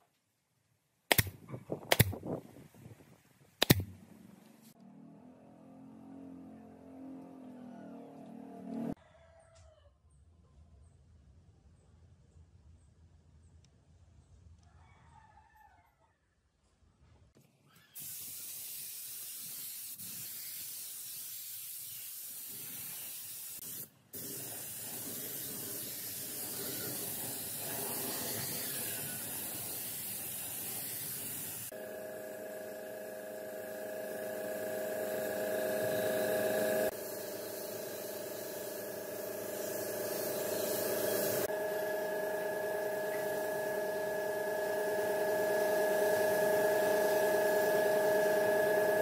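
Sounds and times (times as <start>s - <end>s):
spray gun hissing: 18.0s - 31.8s, 34.1s - 41.5s, 45.3s - 49.0s.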